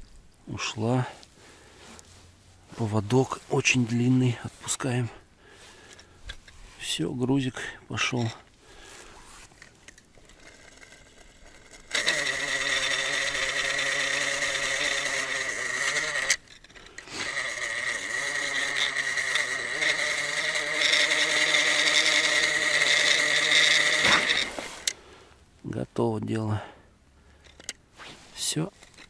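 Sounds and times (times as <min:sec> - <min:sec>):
fishing reel whirring: 0:09.6 - 0:25.0.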